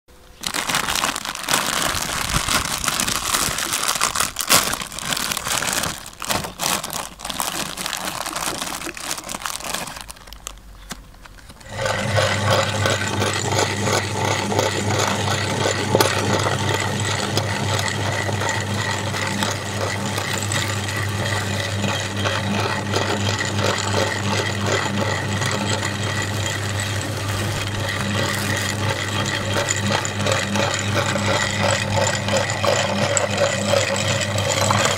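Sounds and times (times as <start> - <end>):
cookies crunching in grinder: 0.1 - 34.9
plastic bag crinkling: 0.2 - 13.9, 24.8 - 34.9
meat grinder motor humming: 0.4 - 10.6, 11.5 - 34.9.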